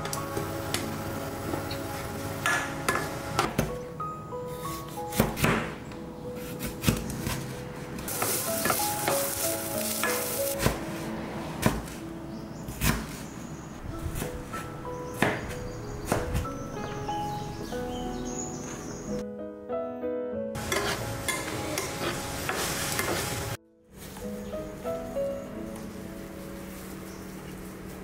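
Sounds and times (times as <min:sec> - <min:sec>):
background music: 0:00.0 - 0:28.0
onions sizzling in a frying pan: 0:08.1 - 0:10.6, 0:20.6 - 0:23.6
spatula stirring: 0:20.6 - 0:23.4.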